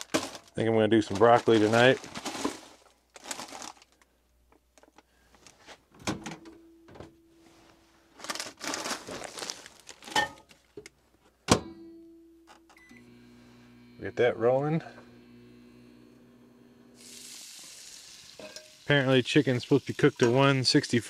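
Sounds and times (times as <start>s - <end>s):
rustling: 0.0s - 4.1s, 7.4s - 11.3s.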